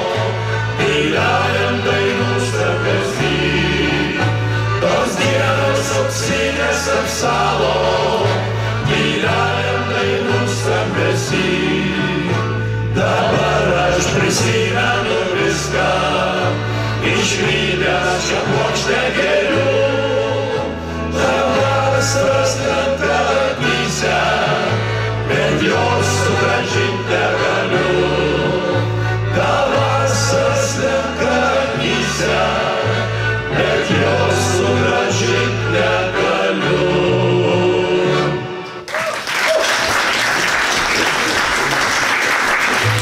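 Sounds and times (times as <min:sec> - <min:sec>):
men singing in harmony: 0:00.0 - 0:38.6
accordion: 0:00.0 - 0:38.9, 0:40.4 - 0:43.0
violin: 0:00.0 - 0:38.9
audience applause: 0:38.9 - 0:43.0.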